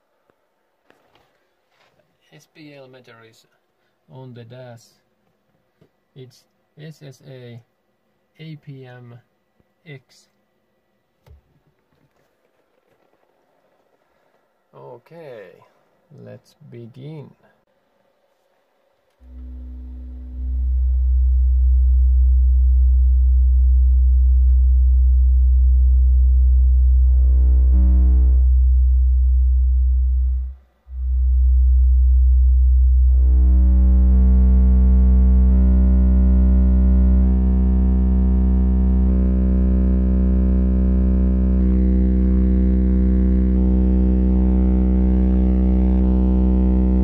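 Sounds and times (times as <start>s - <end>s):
loud low sine tone: 19.1s - 47.0s.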